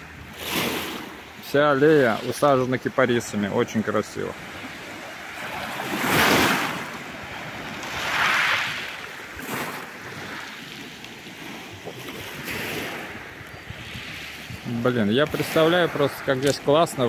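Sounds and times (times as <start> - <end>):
waves washing onto pebble beach: 4.0 - 17.0.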